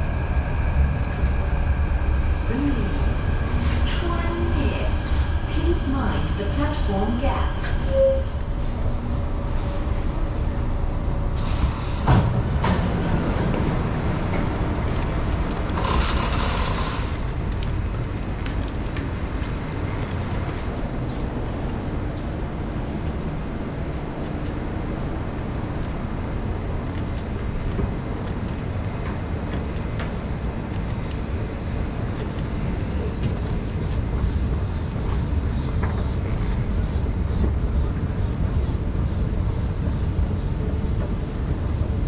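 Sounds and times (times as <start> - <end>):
low rumble of train: 0.0 - 42.0
train door clunk: 11.4 - 14.5.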